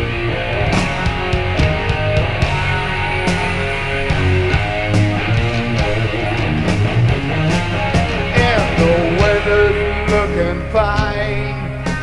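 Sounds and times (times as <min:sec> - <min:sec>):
bass: 0:00.0 - 0:12.0
drums with cymbal strikes: 0:00.0 - 0:12.0
electric guitar melody: 0:00.0 - 0:12.0.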